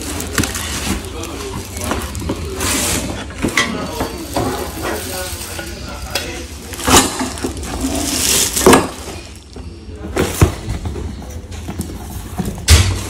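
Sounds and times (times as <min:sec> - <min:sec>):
plastic wrap crinkling: 0:00.0 - 0:09.6.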